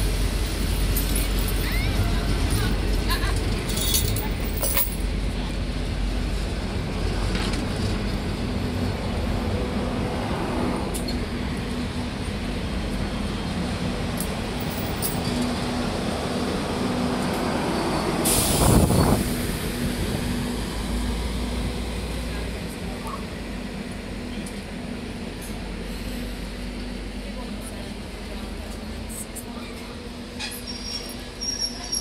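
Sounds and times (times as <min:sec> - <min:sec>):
loud burst of hiss: 0:18.2 - 0:20.0.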